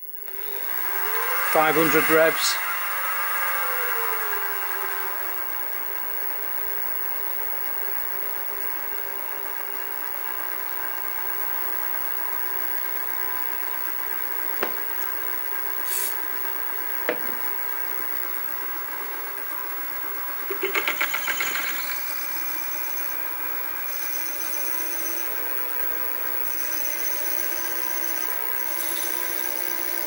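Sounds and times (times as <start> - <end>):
mill spindle motor whine: 0.0 - 30.0
short hiss: 15.8 - 16.2.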